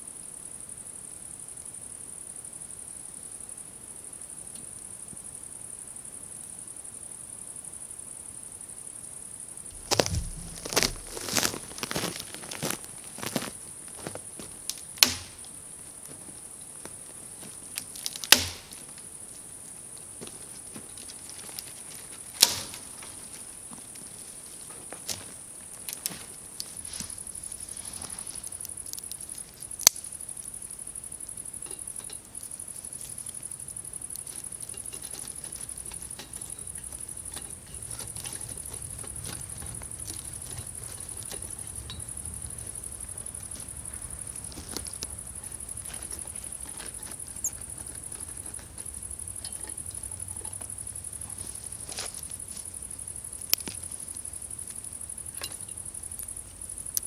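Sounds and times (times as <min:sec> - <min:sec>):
high-pitched insect chorus: 0:00.0 - 0:57.0
wood fire crackling and popping: 0:09.7 - 0:15.4, 0:17.7 - 0:18.8, 0:22.2 - 0:22.8, 0:25.9 - 0:30.1.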